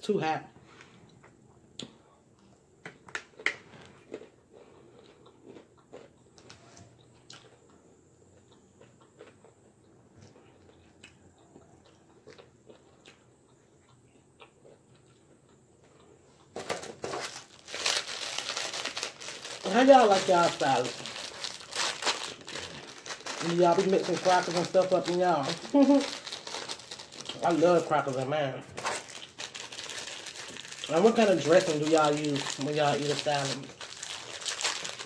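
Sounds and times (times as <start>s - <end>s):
person chewing crunchy food: 1.0s - 27.8s, 28.8s - 35.0s
plastic packet crinkling: 16.6s - 35.0s.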